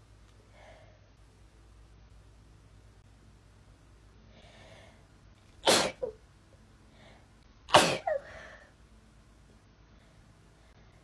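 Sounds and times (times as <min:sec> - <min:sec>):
woman sneezing: 0:05.7 - 0:06.1, 0:07.7 - 0:08.3.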